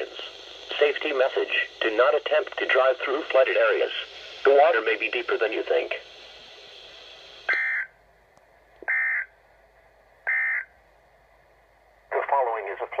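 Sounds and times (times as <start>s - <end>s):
buzzy data bursts: 0.0s - 8.0s
faint hiss: 0.0s - 8.9s.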